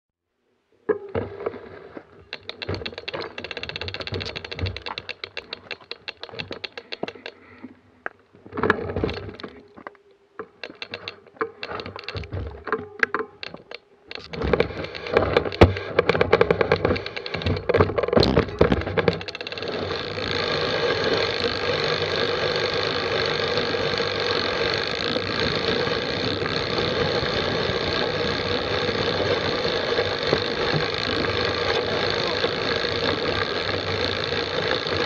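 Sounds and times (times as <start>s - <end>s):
bike chain rattle: 2.3s - 7.5s, 10.6s - 35.0s
bike freehub clicking: 2.3s - 7.8s, 10.4s - 35.0s.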